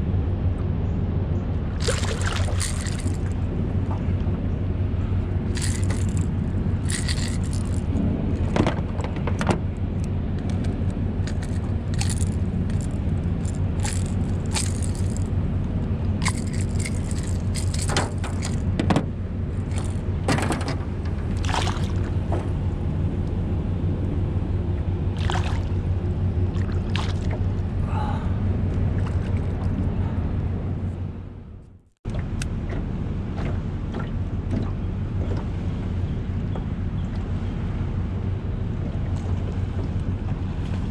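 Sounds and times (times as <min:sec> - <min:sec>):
steady low rumble: 0:00.0 - 0:40.9
fish splashing at water surface: 0:01.8 - 0:03.4
knocks on boat: 0:08.5 - 0:09.6, 0:18.1 - 0:19.1.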